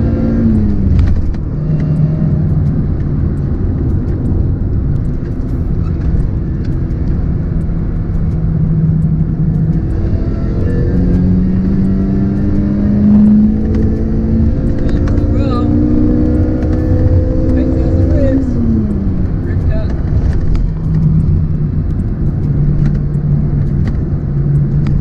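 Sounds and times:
car engine accelerating: 0.0s - 25.0s
tyre and road noise: 0.0s - 25.0s.

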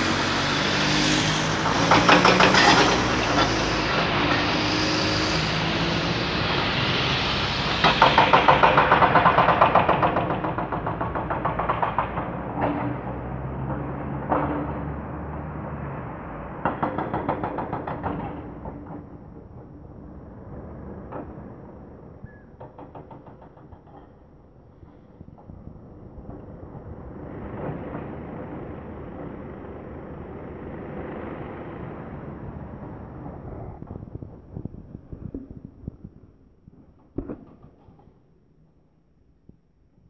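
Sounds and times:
heavy diesel engine running: 0.0s - 21.9s.

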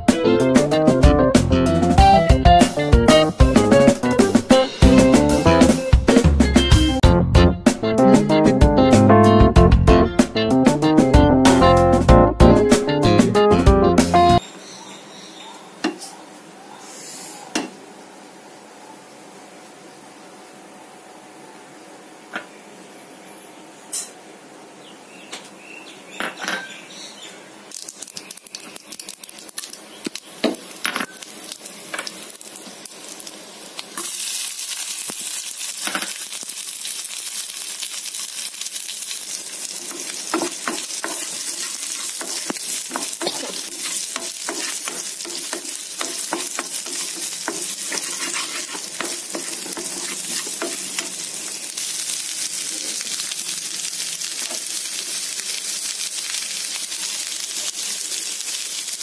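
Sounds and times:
loud frying sizzle: 0.0s - 7.4s, 8.1s - 15.3s, 16.4s - 25.6s, 26.7s - 59.0s
seeds popping in hot oil: 27.7s - 59.0s
stirring in pan: 36.8s - 52.7s.

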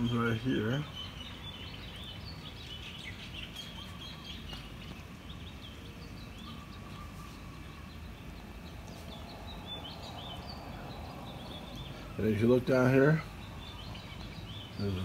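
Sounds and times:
low background rumble: 0.0s - 15.0s
small birds chirping: 0.0s - 15.0s.

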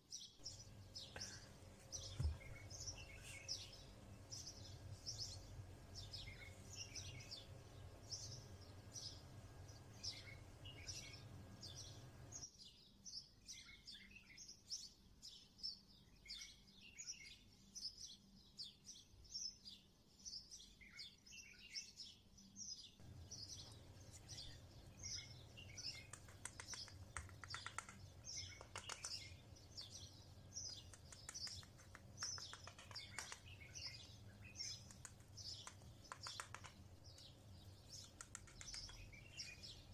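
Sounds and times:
small birds chirping: 0.0s - 39.9s
faint low hum: 0.1s - 13.2s, 21.3s - 39.9s.

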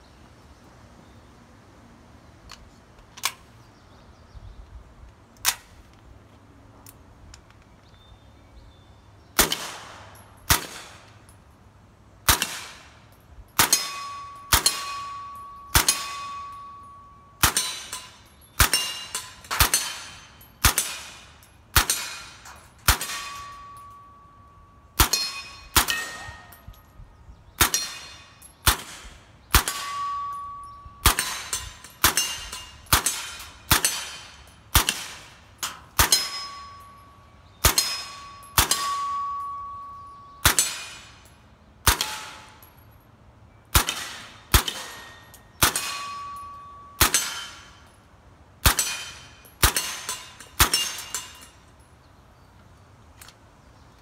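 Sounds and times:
bullet clanging on steel target: 12.4s - 43.0s, 43.8s - 48.1s, 48.7s - 52.5s.

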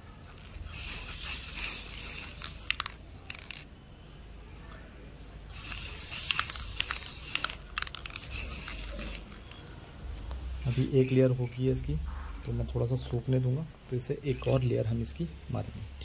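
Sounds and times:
spray can hissing: 0.3s - 3.6s, 5.5s - 9.6s.

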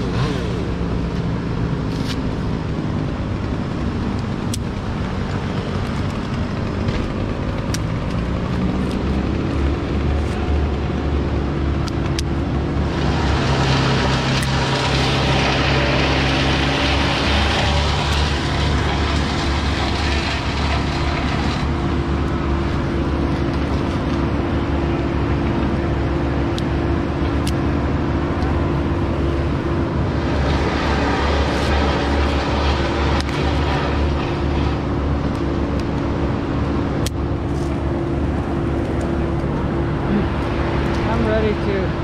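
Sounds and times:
engine droning: 0.0s - 42.0s.

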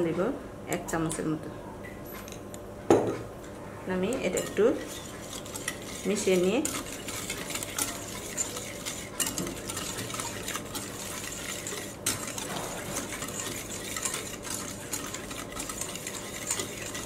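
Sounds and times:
whisk scraping and tapping a bowl: 4.1s - 17.0s.

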